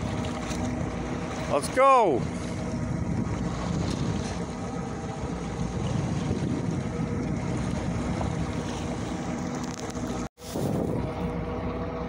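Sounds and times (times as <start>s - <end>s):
outboard motor running: 0.0s - 12.0s
wind noise on microphone: 2.2s - 11.4s.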